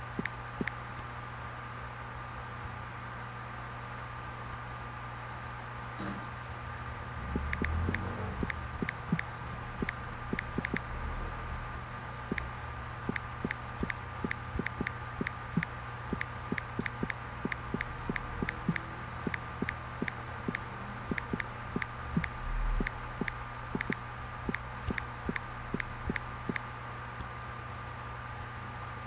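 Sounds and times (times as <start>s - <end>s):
steady machine hum: 0.0s - 29.0s
fast irregular clicking: 7.3s - 10.8s, 12.3s - 12.5s, 13.1s - 26.6s.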